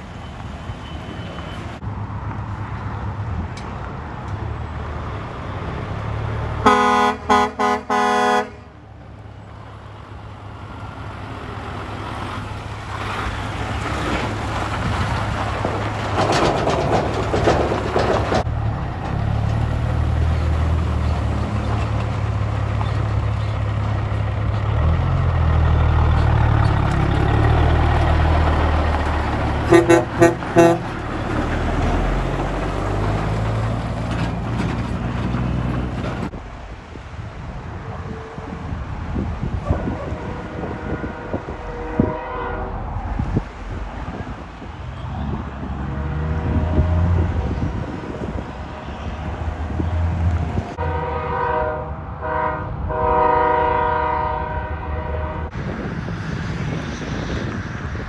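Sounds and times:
diesel trucks passing: 0.0 - 58.0
truck air horn blasts: 6.6 - 8.7, 29.6 - 31.0, 39.7 - 42.9, 50.8 - 55.6.

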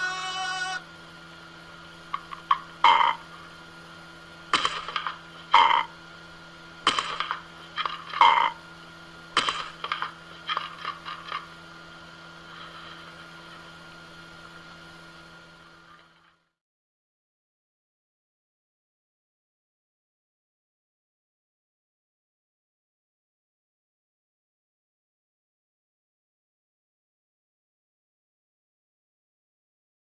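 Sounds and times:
parrot squawking: 0.0 - 0.8
steady low hum: 0.0 - 16.5.

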